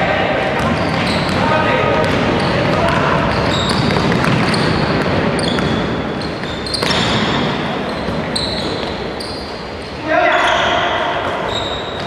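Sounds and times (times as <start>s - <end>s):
din in a gym hall: 0.0s - 12.0s
sneakers squeaking: 0.0s - 12.0s
basketball bouncing: 0.5s - 9.0s.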